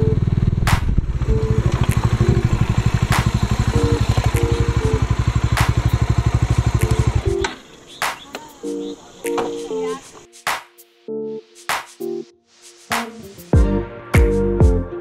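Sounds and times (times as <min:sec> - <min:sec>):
motorcycle engine running: 0:00.0 - 0:07.8
sharp clicks: 0:06.8 - 0:08.4.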